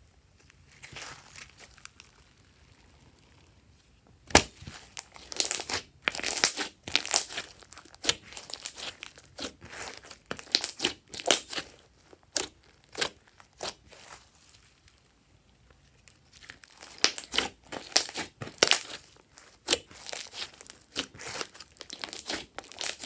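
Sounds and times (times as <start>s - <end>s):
slime clicking and popping: 10.3s - 11.6s, 16.8s - 19.0s.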